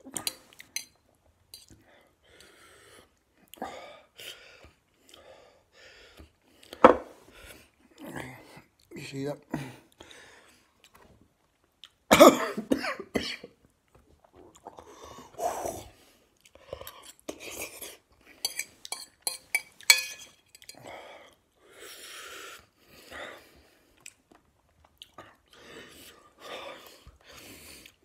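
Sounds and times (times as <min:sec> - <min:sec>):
chewing: 0:10.8 - 0:12.1, 0:13.9 - 0:15.3, 0:16.4 - 0:19.2, 0:23.6 - 0:28.0
man coughing: 0:12.1 - 0:13.5
fork clicking against bowl: 0:18.5 - 0:20.8.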